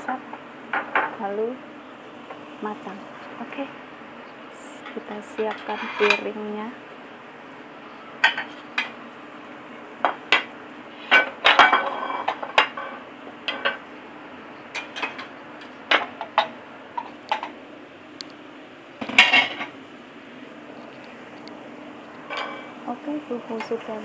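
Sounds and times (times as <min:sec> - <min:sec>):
low steady hum: 0:00.0 - 0:24.0
dishes and cutlery clinking: 0:05.4 - 0:06.3, 0:11.1 - 0:13.8, 0:22.3 - 0:22.7.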